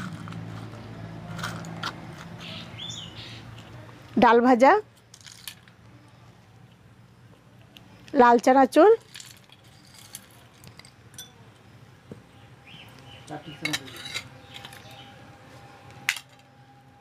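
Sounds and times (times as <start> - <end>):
ringing clink: 11.1 - 11.4
spoon scraping glass jar: 13.6 - 14.9.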